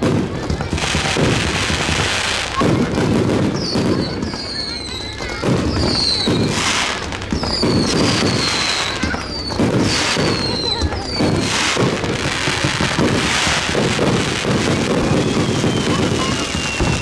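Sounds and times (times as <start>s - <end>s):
firework crackling: 0.0s - 17.0s
firework shells booming: 0.0s - 17.0s
high whistling tones: 3.5s - 12.0s, 14.5s - 17.0s.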